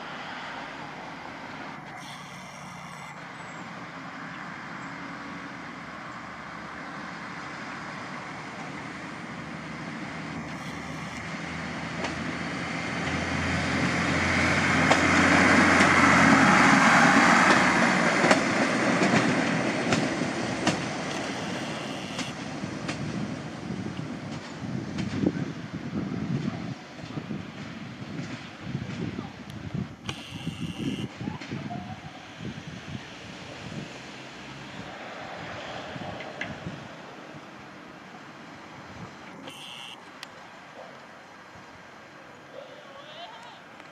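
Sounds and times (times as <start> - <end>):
railcar diesel engine hum: 0.0 - 43.9
train wheel rumble: 7.2 - 30.0
wheels clicking over rail joints: 10.3 - 25.3, 42.6 - 43.9.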